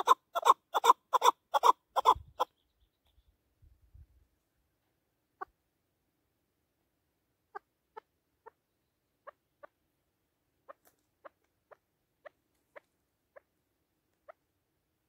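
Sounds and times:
partridge ticking calls: 0:00.0 - 0:03.3, 0:07.5 - 0:09.8, 0:10.6 - 0:14.6.

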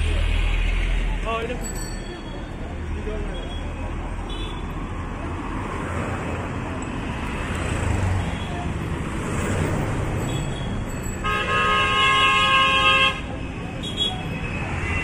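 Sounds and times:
bus engine and tyre noise: 0:00.0 - 0:15.0
street traffic: 0:00.0 - 0:15.0
multi-tone vehicle horn blast: 0:11.2 - 0:15.0.

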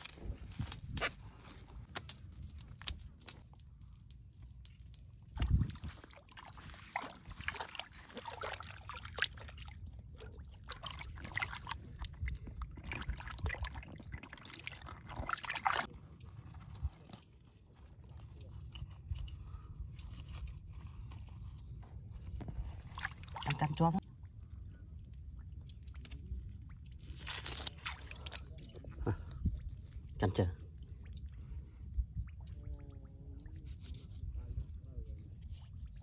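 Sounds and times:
river water splashing around hands: 0:05.4 - 0:12.1, 0:12.8 - 0:15.9.

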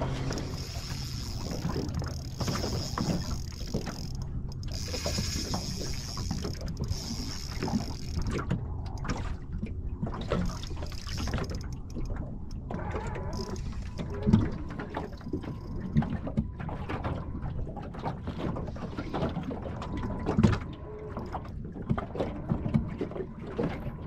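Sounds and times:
fishing reel whirring: 0:00.0 - 0:09.1, 0:10.4 - 0:14.3.

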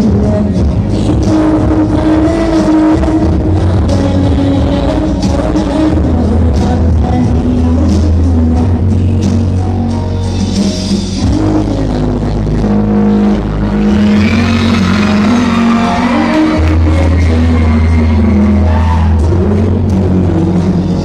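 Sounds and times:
loud dance music: 0:00.0 - 0:21.0.

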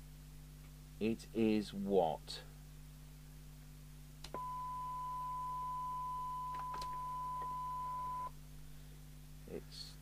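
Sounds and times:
steady test tone: 0:04.4 - 0:08.3.

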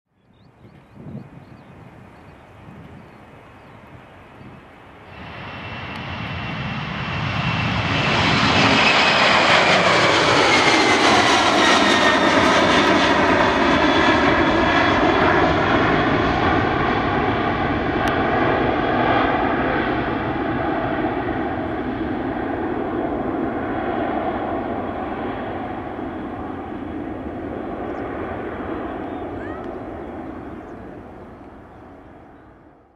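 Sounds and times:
jet engines at takeoff thrust: 0:00.2 - 0:32.9
jet engine whine falling in pitch: 0:04.4 - 0:32.7.

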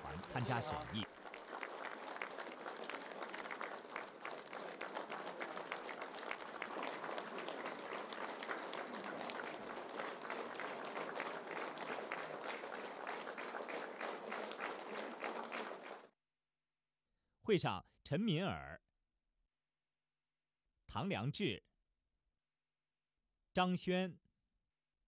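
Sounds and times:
crowd applauding: 0:00.0 - 0:16.1.

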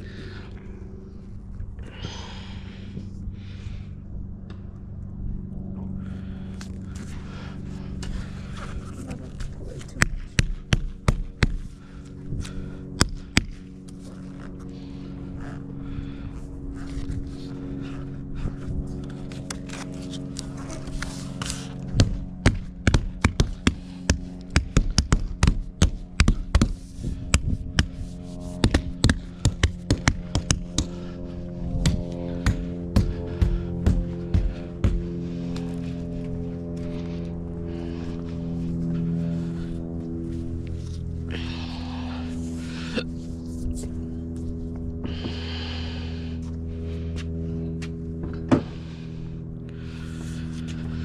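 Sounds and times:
sharp taps and knocks: 0:28.6 - 0:30.9.

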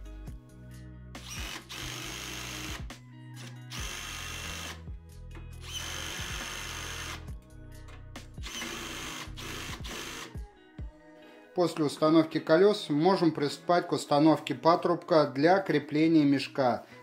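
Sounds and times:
background music: 0:00.0 - 0:17.0
cordless drill whining: 0:01.2 - 0:02.9, 0:03.6 - 0:04.8, 0:05.6 - 0:07.3, 0:08.4 - 0:10.4.

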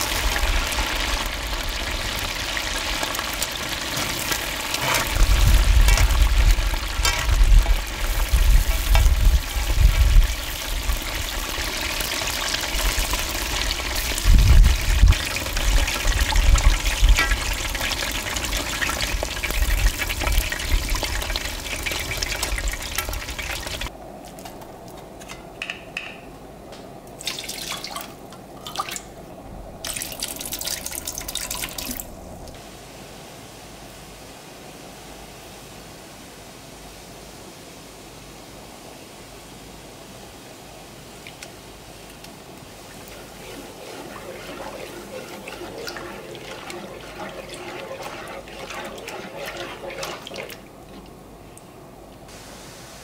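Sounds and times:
chicken deep-frying in oil: 0:00.0 - 0:23.9, 0:29.8 - 0:32.2, 0:42.2 - 0:51.1.

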